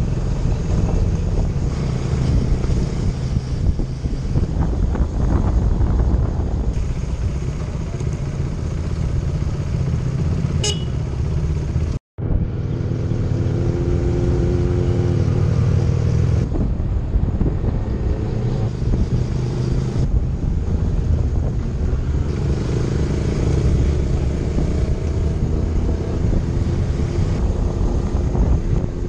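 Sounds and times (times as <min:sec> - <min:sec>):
wind rush on microphone: 0:00.0 - 0:07.6, 0:12.2 - 0:29.0
motorcycle engine running: 0:00.0 - 0:14.2
vehicle horn: 0:10.6 - 0:11.0.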